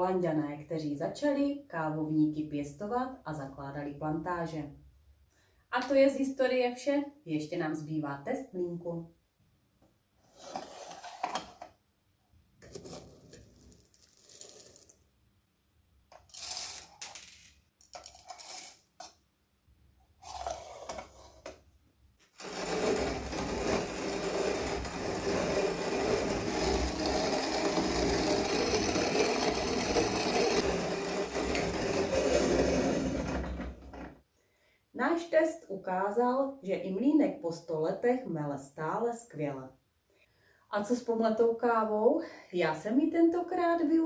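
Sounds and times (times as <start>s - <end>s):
hand coffee grinder grinding: 12.6s - 15.0s, 22.4s - 33.6s
metal parts clinking and scraping: 16.1s - 19.2s.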